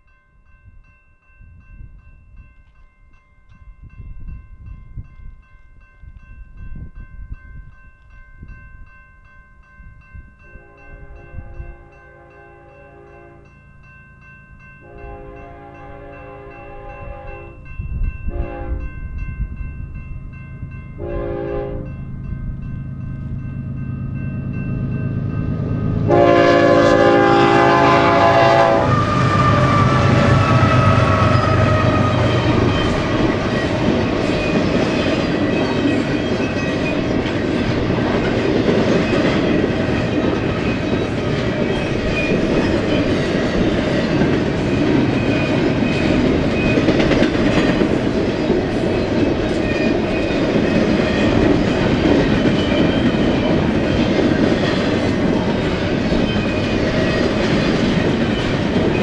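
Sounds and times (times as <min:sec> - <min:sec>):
locomotive horn: 0:10.5 - 0:13.5, 0:14.8 - 0:17.6, 0:18.3 - 0:18.9, 0:21.0 - 0:22.0, 0:26.0 - 0:32.7
train wheels rumbling on rails: 0:14.8 - 0:59.0
clickety-clack over rail joints: 0:29.5 - 0:59.0.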